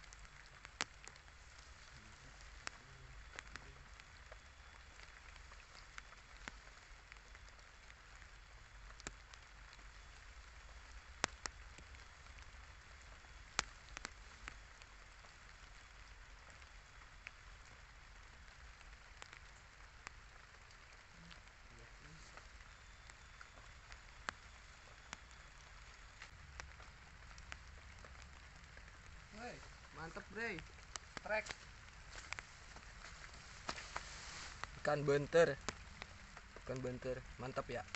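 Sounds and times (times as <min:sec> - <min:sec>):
rain patter: 0:00.0 - 0:37.9
single raindrop taps: 0:11.1 - 0:15.9, 0:22.3 - 0:34.8.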